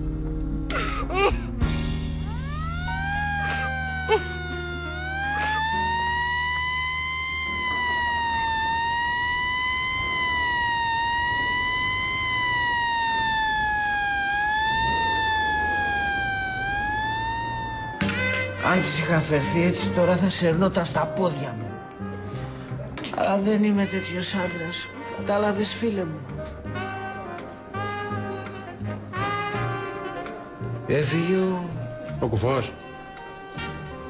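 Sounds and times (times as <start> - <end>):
siren wailing: 2.2 - 21.8.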